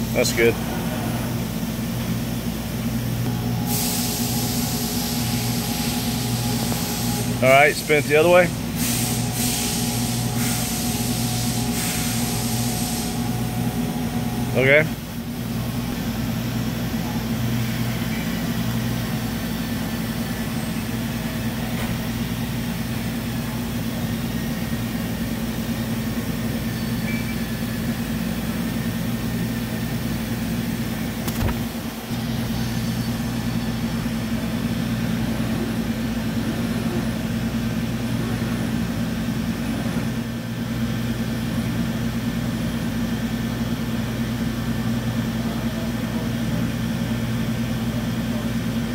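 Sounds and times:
milling machine humming: 0:00.0 - 0:23.6
sharp click: 0:31.2 - 0:31.7.

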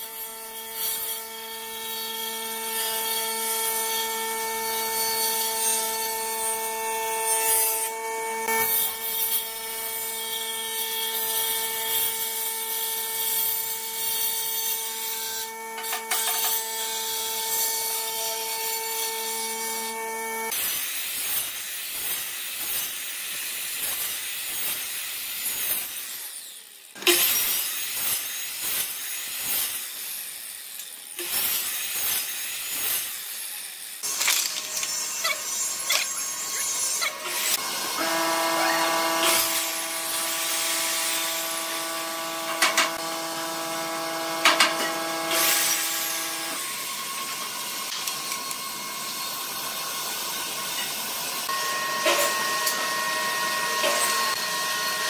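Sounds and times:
miter saw cutting board: 0:00.0 - 0:55.0
table saw ripping board: 0:34.0 - 0:41.8, 0:42.4 - 0:43.1, 0:44.3 - 0:46.3, 0:51.8 - 0:53.0.

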